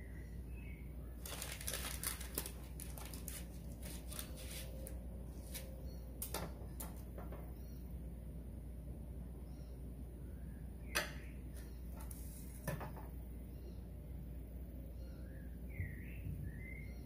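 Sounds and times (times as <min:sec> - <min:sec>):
paper baking cups crinkling: 0:01.2 - 0:07.0.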